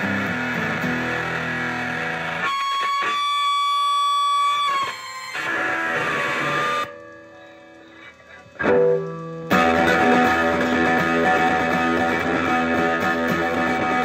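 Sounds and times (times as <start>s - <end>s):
loud distorted guitar chord: 0.0s - 3.2s, 8.6s - 14.0s
electric guitar notes ringing: 0.0s - 14.0s
single picked guitar note: 5.9s - 14.0s.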